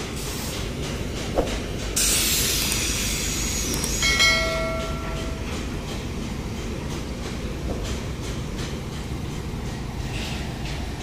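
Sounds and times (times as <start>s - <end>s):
bell-like ding: 4.0s - 5.4s.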